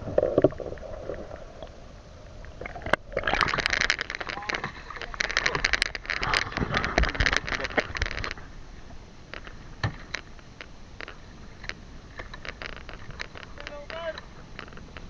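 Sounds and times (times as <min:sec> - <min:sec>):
splashing: 0:00.0 - 0:08.5
sea noise: 0:00.0 - 0:15.0.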